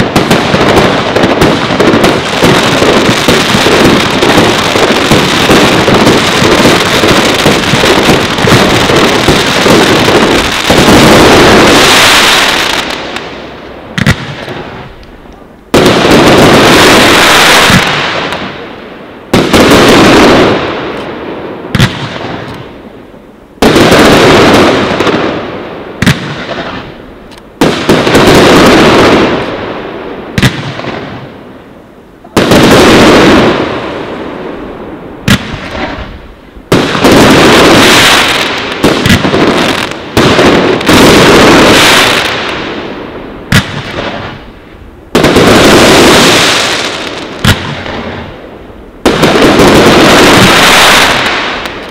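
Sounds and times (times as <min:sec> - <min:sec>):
sharp firework cracks: 0:00.0 - 0:18.7, 0:19.3 - 0:22.7, 0:23.6 - 0:31.4, 0:35.2 - 0:51.9
firework bursts with long tails: 0:00.0 - 0:51.9.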